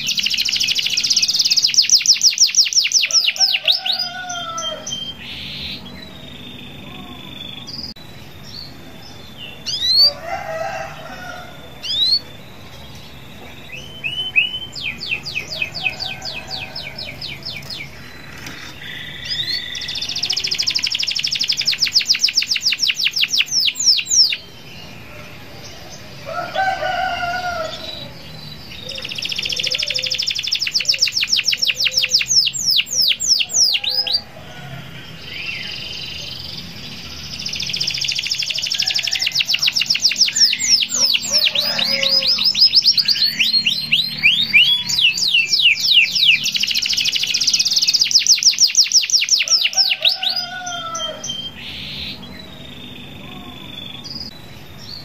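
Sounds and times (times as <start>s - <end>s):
canary singing: 0.0s - 55.0s.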